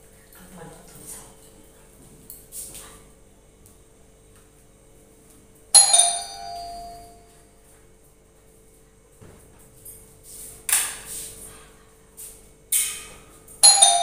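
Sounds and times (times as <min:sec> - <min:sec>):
ding-dong doorbell chime: 0:05.8 - 0:07.5, 0:13.6 - 0:14.0.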